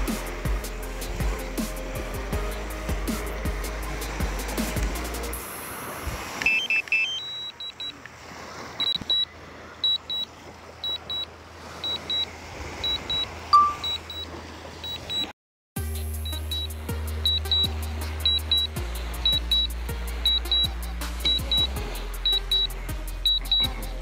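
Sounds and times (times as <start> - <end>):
background music: 0.0 - 5.6, 15.8 - 24.0
remote controller beeping: 6.4 - 8.0, 8.8 - 11.2, 12.8 - 15.3, 16.3 - 16.7, 22.3 - 22.7, 23.3 - 23.7.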